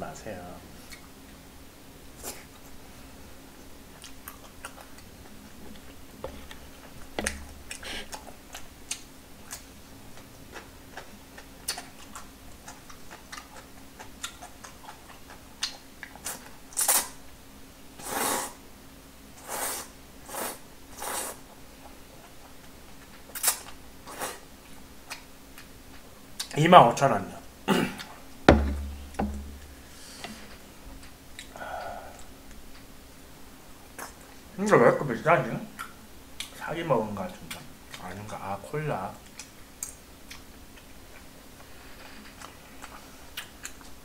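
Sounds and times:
chewing: 4.0s - 17.1s, 21.8s - 26.6s, 39.2s - 44.0s
slurping noodles: 18.0s - 18.6s, 19.4s - 21.4s.

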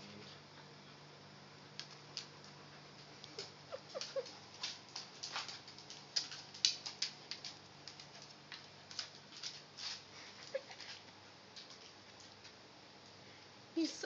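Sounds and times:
dog claws clicking on wooden floor: 1.8s - 12.6s.

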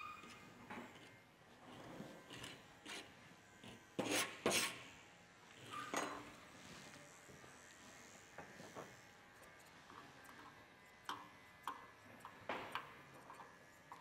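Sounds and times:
brush strokes through fur: 6.3s - 10.2s.

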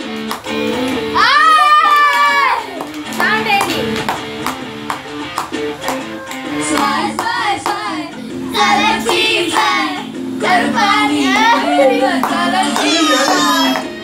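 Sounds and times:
instrumental backing music: 0.0s - 14.0s
person singing: 5.7s - 14.0s.

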